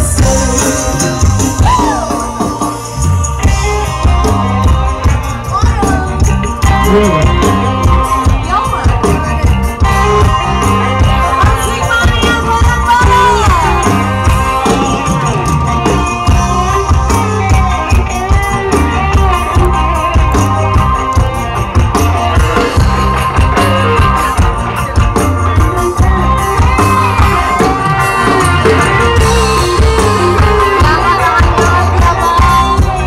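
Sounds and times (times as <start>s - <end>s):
live band music: 0.0s - 33.0s
pulsing drum and bass beat: 0.0s - 33.0s
woman singing: 5.5s - 14.8s, 29.4s - 33.0s.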